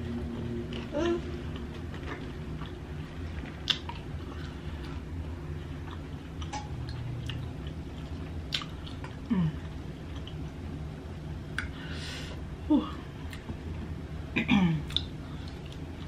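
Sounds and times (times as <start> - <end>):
steady low hum: 0.0 - 16.0
person chewing food: 0.3 - 10.6, 14.9 - 16.0
wet mouth clicks: 14.9 - 15.1.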